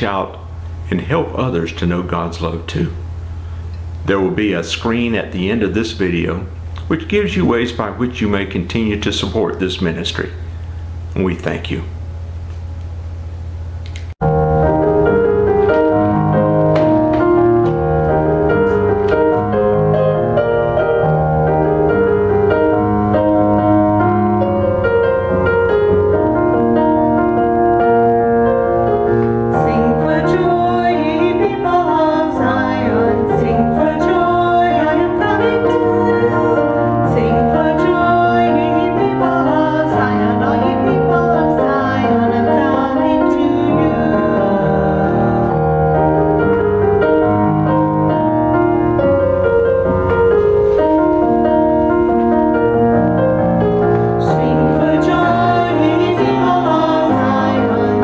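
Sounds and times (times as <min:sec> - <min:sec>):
slow piano accompaniment: 0:11.9 - 0:58.0
group of voices singing: 0:29.5 - 0:45.6, 0:54.2 - 0:58.0.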